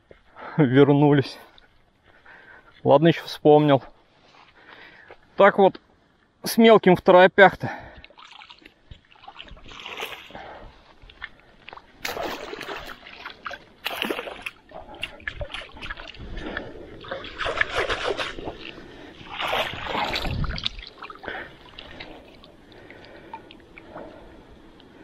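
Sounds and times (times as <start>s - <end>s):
water splashing off a net: 8.2s - 10.3s, 12.0s - 14.6s, 17.0s - 21.9s.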